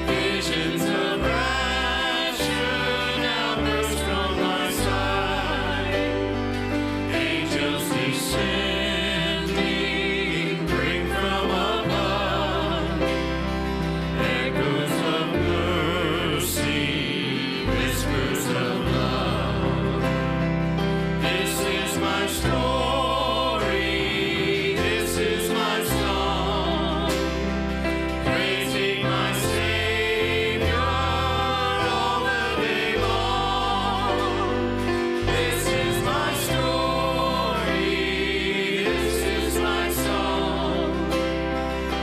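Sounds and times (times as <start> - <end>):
bass guitar: 0.0 - 7.8, 17.7 - 38.4
acoustic guitar: 0.0 - 42.0.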